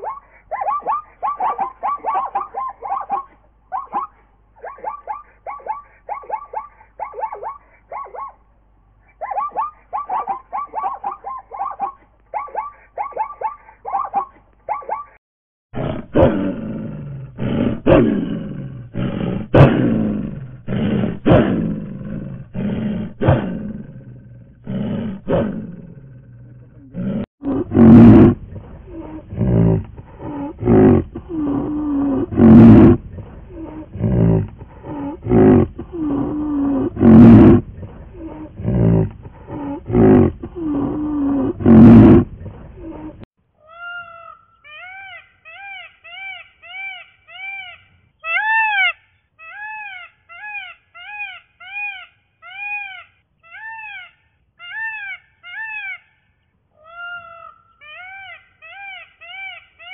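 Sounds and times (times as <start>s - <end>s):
large animal roaring: 15.8s - 43.2s.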